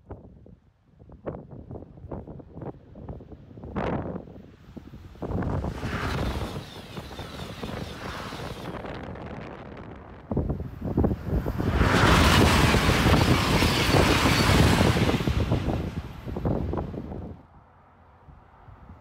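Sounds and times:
wind buffeting microphone: 0:00.0 - 0:17.5
high-speed train passing: 0:04.6 - 0:19.0.

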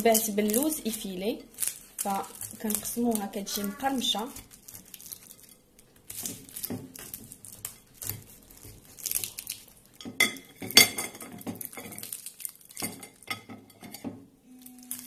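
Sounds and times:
knife sawing through crisp pastry: 0:06.2 - 0:09.4.

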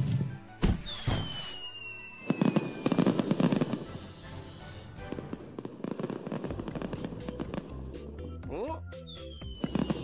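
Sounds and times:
background music: 0:00.0 - 0:10.0
falling firework whistle: 0:00.6 - 0:07.4, 0:09.0 - 0:10.0
sparks crackling: 0:00.9 - 0:07.8.

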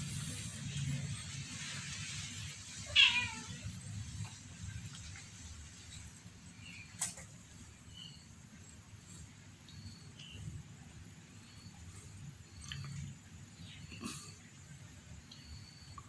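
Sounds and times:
cat meowing: 0:02.9 - 0:03.6.

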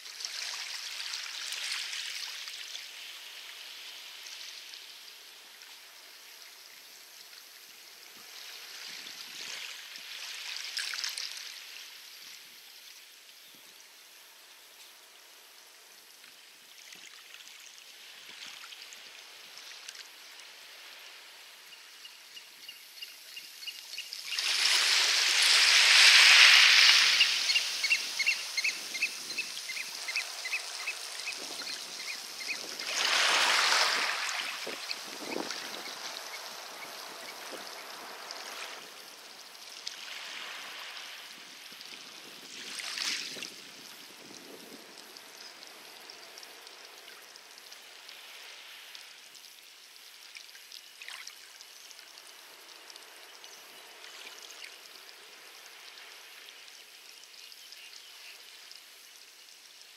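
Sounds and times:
waves washing onto pebbles: 0:24.2 - 0:47.0.

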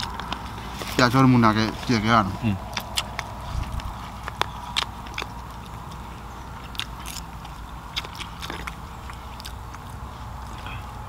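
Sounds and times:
person chewing food: 0:00.0 - 0:11.0
crunching clicks: 0:02.7 - 0:06.0.

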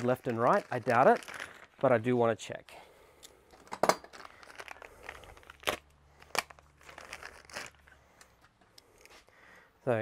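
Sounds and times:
plastic bag crinkling: 0:00.0 - 0:02.7, 0:04.0 - 0:08.0.

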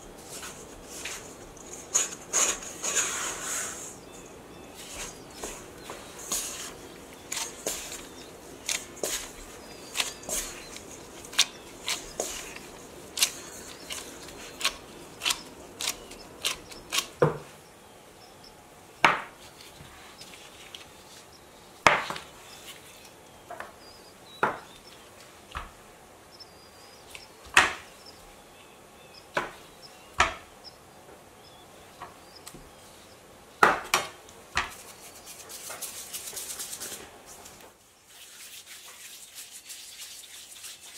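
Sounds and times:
dough knocking and scraping in bowl: 0:04.8 - 0:17.5.

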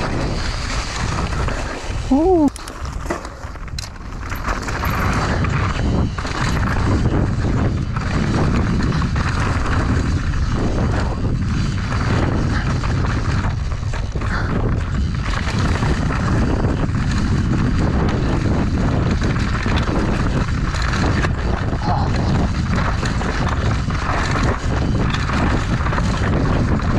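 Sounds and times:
bike rattling over bumps: 0:00.0 - 0:26.9
wind rumble on microphone: 0:00.0 - 0:26.9.

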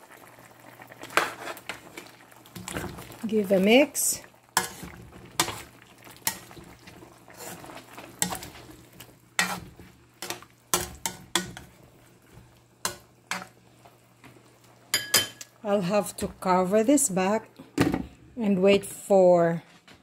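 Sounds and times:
spatula scraping metal pan: 0:04.6 - 0:06.4, 0:07.3 - 0:08.6, 0:09.4 - 0:11.7.

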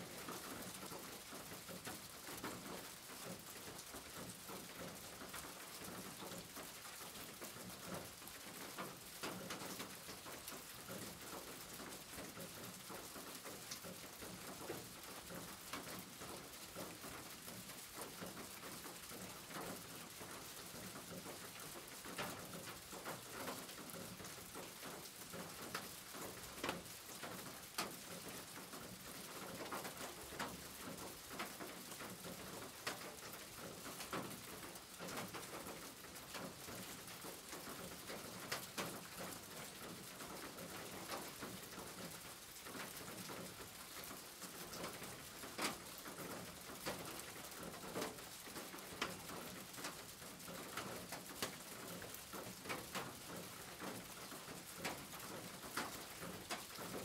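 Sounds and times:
rain on a tin roof: 0:00.0 - 0:57.0.

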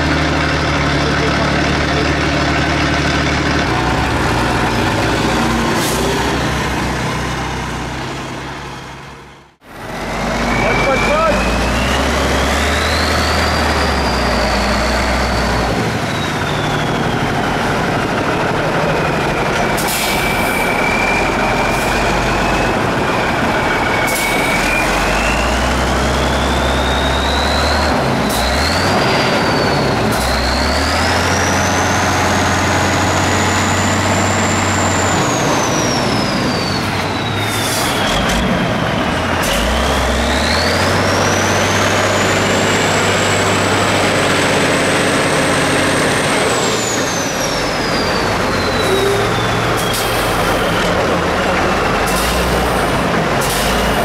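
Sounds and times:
truck engine revving: 0:00.0 - 0:54.0
turbo whistle: 0:47.3 - 0:50.2.

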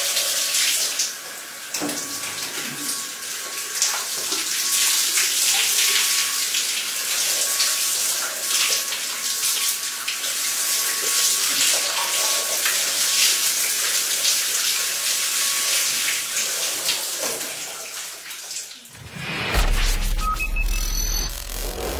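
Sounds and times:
deep bass sound: 0:19.0 - 0:21.9.

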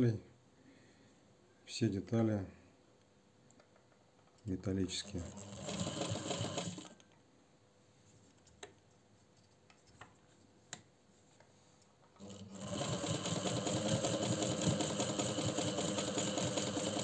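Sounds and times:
sewing machine clicks: 0:05.0 - 0:07.0, 0:12.2 - 0:17.0
sewing machine running: 0:05.0 - 0:07.0, 0:12.2 - 0:17.0.

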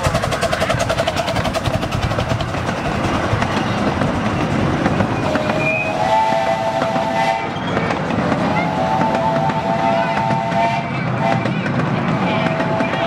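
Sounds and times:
train wheels clattering on rails: 0:00.0 - 0:13.0
chime whistle: 0:05.2 - 0:06.1.

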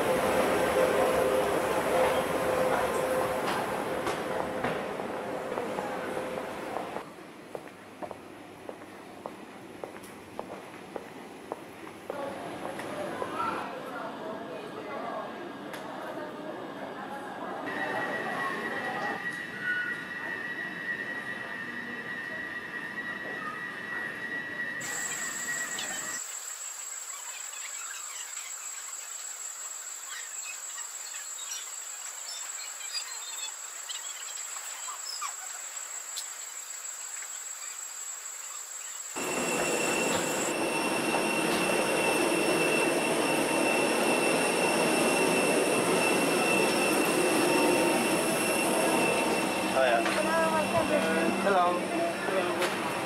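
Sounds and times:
aircraft cabin air rushing: 0:00.0 - 0:07.0, 0:39.2 - 0:53.0
steady high whine: 0:00.0 - 0:07.1, 0:39.2 - 0:53.0.

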